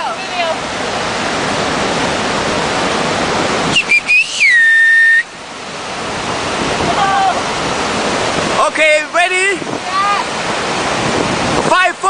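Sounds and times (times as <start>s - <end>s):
steady rushing noise: 0.0s - 12.0s
loud high whistle: 3.7s - 5.4s.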